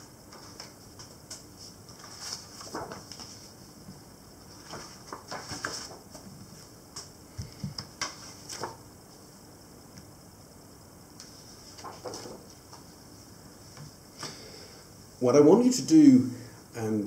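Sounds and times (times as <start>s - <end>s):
paper rustling on wooden table: 0.3s - 3.6s, 4.5s - 7.1s, 7.7s - 8.8s, 11.2s - 12.9s.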